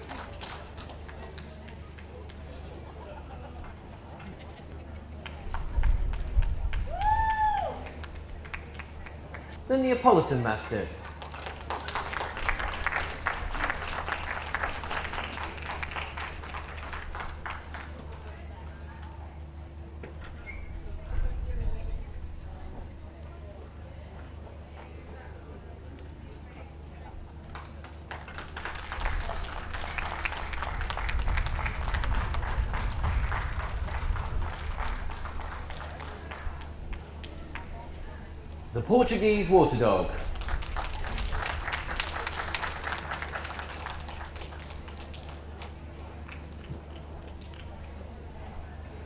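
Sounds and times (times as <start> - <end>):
audience applauding: 0.0 - 3.0, 10.1 - 18.4, 27.5 - 37.7, 39.2 - 47.9
low hum: 28.8 - 38.8.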